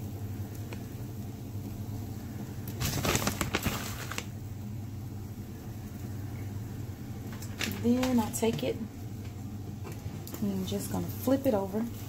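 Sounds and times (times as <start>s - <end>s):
steady low hum: 0.0s - 12.0s
rustling: 2.7s - 4.3s.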